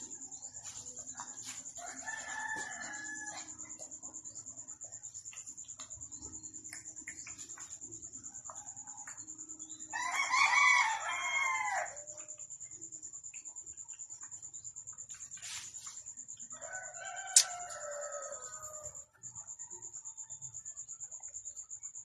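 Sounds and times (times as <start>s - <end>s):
high insect trill: 0.0s - 22.0s
rooster crowing: 1.8s - 3.5s, 9.9s - 12.1s, 16.5s - 19.0s.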